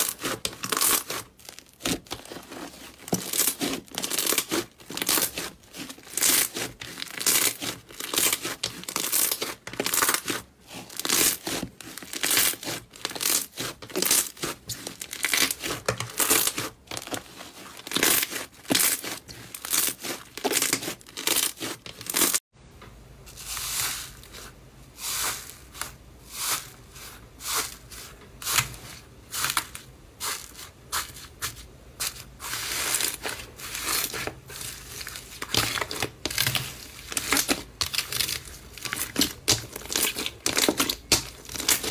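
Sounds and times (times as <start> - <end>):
slime crackling and tearing: 0.0 - 22.4, 32.4 - 41.9.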